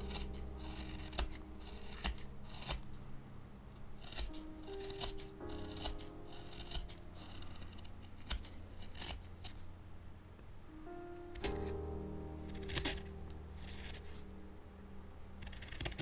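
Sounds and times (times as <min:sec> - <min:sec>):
knife slicing wood shavings: 0:00.0 - 0:02.9, 0:04.0 - 0:09.6, 0:12.5 - 0:14.2, 0:15.4 - 0:16.0.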